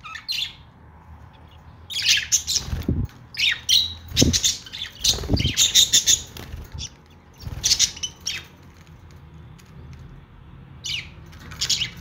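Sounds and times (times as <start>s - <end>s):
budgerigars chirping: 0.0s - 0.7s, 1.3s - 8.5s, 10.8s - 12.0s.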